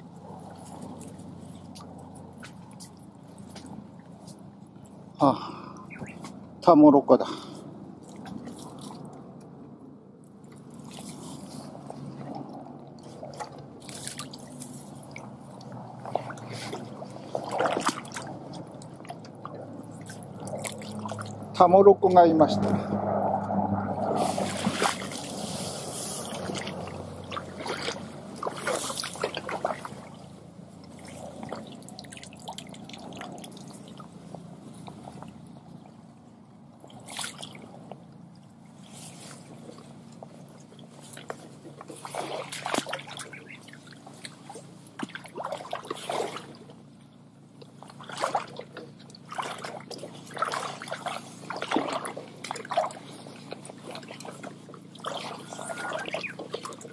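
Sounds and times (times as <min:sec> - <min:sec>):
water splashing in a stream: 0:10.2 - 0:56.9.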